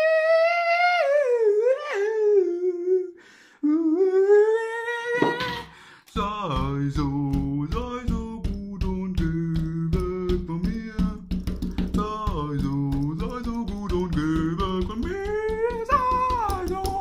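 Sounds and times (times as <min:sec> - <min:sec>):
high wordless crooning vocal: 0:00.0 - 0:08.2, 0:12.0 - 0:17.0
bass line with steady beat: 0:06.2 - 0:17.0.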